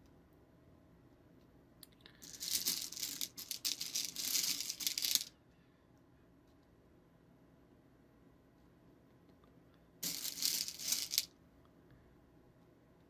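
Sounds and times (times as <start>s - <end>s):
candies rattling in a container: 2.2s - 5.3s, 10.0s - 11.3s.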